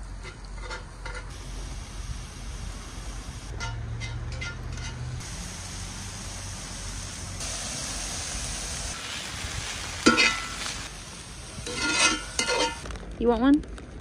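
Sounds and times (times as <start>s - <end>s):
chicken sizzling in a skillet: 4.9s - 12.9s
metal tongs scraping pan: 10.0s - 10.6s, 11.6s - 12.8s.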